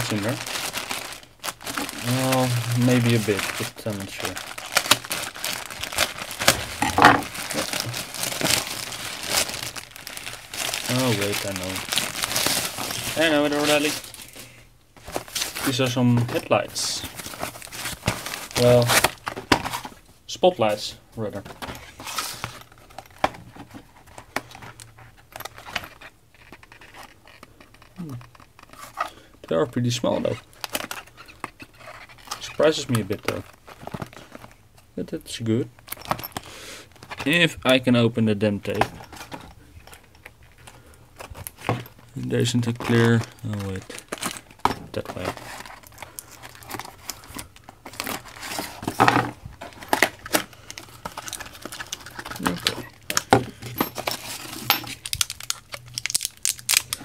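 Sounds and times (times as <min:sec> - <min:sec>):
plastic and foam crinkling: 0:00.0 - 0:57.0
cardboard box rustling: 0:00.1 - 0:14.2, 0:15.0 - 0:20.0, 0:42.6 - 0:52.8.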